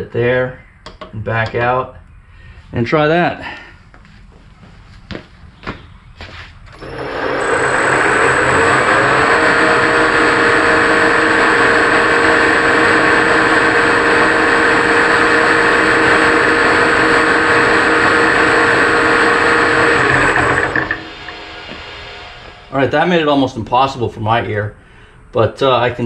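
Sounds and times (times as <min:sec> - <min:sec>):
thin high whine: 0:06.7 - 0:24.6
electric motor running: 0:06.8 - 0:23.1.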